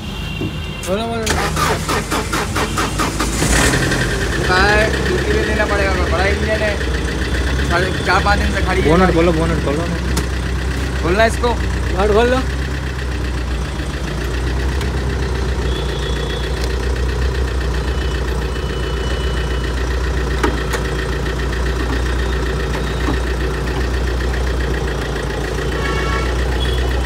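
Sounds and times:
diesel engine idling: 0:00.0 - 0:27.0.

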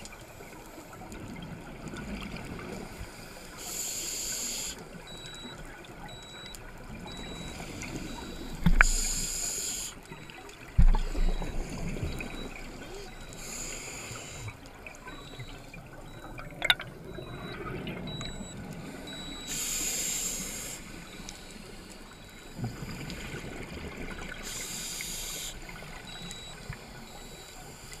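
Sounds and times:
regulator hissing inhale: 0:03.0 - 0:04.8, 0:08.8 - 0:10.1, 0:13.3 - 0:14.6, 0:18.9 - 0:21.8, 0:24.4 - 0:25.6.

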